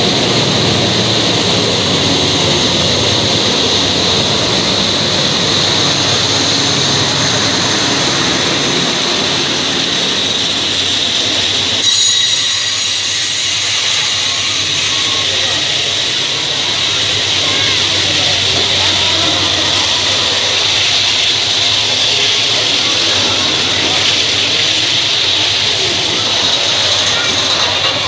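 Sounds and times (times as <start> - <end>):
locomotive engines running: 0.0 - 28.0
train wheels rumbling on rails: 0.0 - 28.0
high wheel squeal: 7.8 - 24.2, 24.9 - 28.0.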